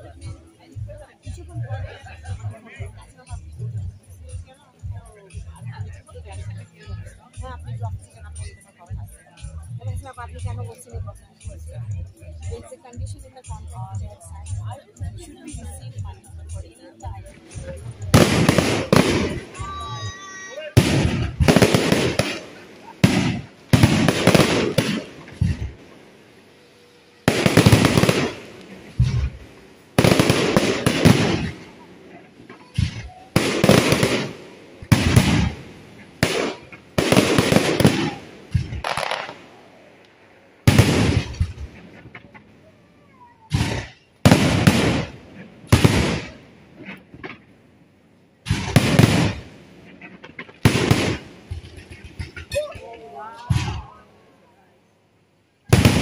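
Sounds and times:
fireworks exploding: 0:17.3 - 0:54.2, 0:55.6 - 0:56.0.

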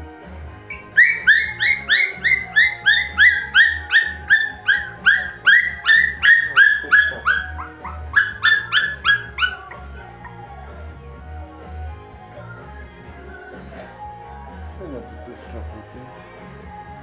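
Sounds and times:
music with bass beat: 0:00.0 - 0:17.0
puppy yelping: 0:00.7 - 0:10.6.

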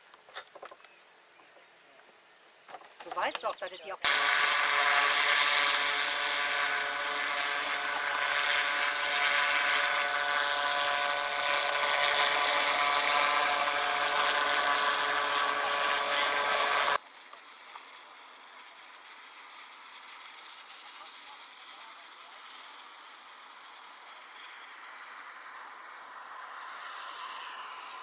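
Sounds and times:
model helicopter whine: 0:04.0 - 0:28.0.

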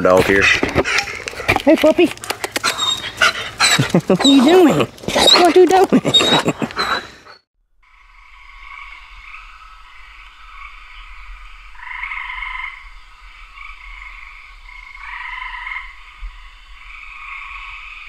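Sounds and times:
chorus of frogs calling: 0:00.3 - 0:18.0
louder frog calls: 0:05.2 - 0:18.0.

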